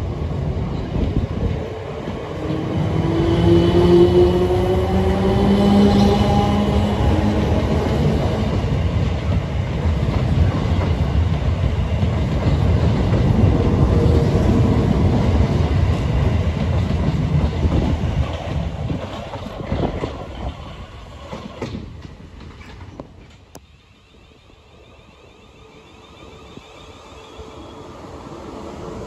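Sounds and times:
train wheels clacking over rail joints: 0:15.6 - 0:23.6.

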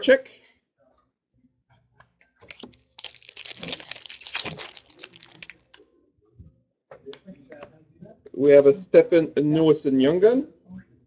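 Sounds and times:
plastic wrapper tearing and crinkling: 0:02.4 - 0:05.8.

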